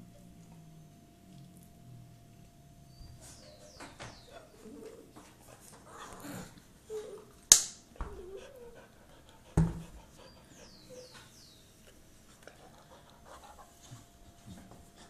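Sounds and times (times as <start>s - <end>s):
dog whining: 3.0s - 5.2s, 5.8s - 7.4s, 8.0s - 9.1s, 10.2s - 11.5s
dog panting: 3.2s - 6.6s, 8.0s - 11.6s, 12.3s - 15.0s.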